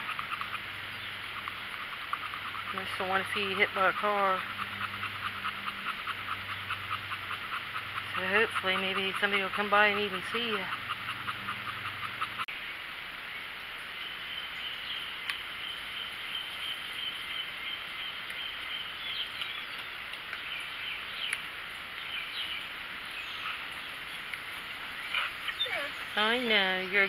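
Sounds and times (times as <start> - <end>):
birds: 0.0 - 27.0.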